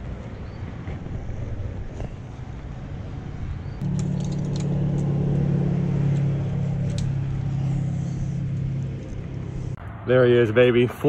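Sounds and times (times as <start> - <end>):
vehicle engine humming: 0.0 - 10.1.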